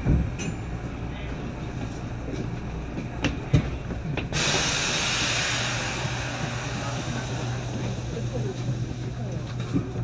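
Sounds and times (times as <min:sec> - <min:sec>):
train low hum: 0:00.0 - 0:10.0
compressed air hissing: 0:04.4 - 0:08.5.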